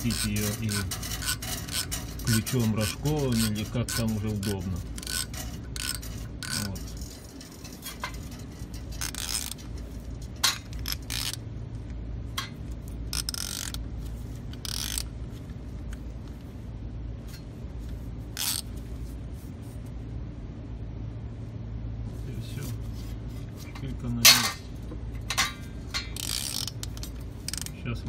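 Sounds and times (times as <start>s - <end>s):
ratchet wrench clicking: 0.0s - 9.9s, 10.5s - 11.4s, 13.1s - 13.8s, 14.5s - 15.1s, 18.4s - 18.7s, 25.3s - 27.8s
metal tool noises: 0.0s - 11.4s, 23.4s - 27.8s
low steady hum: 0.0s - 28.0s.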